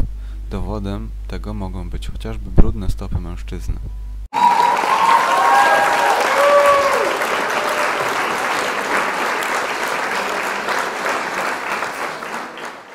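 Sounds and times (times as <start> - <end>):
cheering whoops: 4.3 - 11.1
crowd applauding: 4.3 - 12.9.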